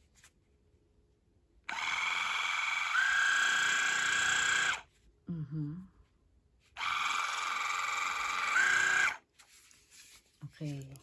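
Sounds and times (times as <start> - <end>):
water flosser pump motor: 1.7 - 4.9, 6.8 - 9.2.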